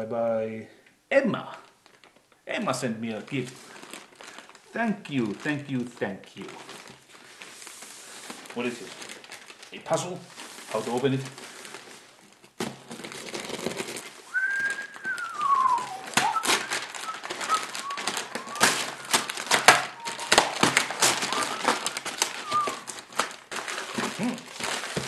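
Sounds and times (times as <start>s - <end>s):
tape and paper tearing: 12.6s - 25.0s.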